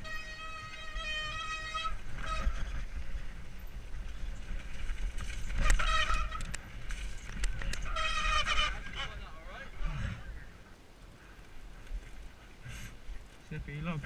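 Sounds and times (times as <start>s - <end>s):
bike brakes squealing: 0.0s - 2.9s
bike tyres rumbling on dirt: 0.0s - 14.0s.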